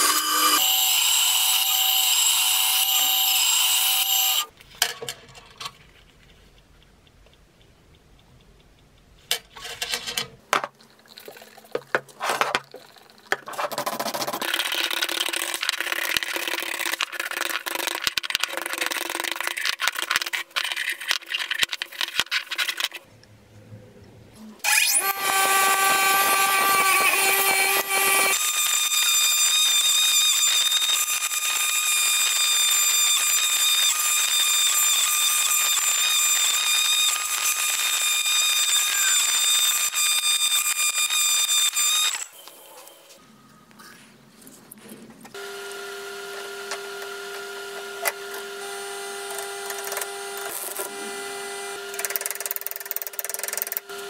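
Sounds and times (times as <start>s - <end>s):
bench grinder whining: 0.0s - 4.5s, 24.6s - 42.9s, 45.4s - 54.0s.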